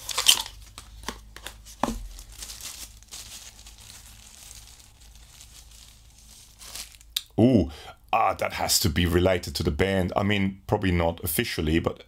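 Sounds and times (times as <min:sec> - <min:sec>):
plastic bag crinkling: 0:00.0 - 0:07.2.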